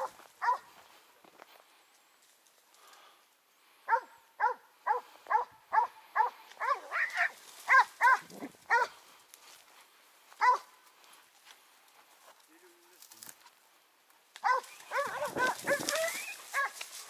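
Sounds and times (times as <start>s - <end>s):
dog barking: 0.0s - 0.7s, 3.9s - 9.0s, 10.4s - 10.7s, 14.4s - 16.8s.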